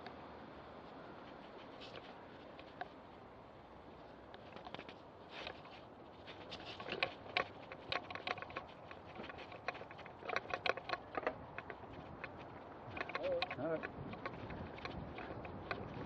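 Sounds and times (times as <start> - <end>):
mountain bike rattling over dirt: 4.5 - 16.0.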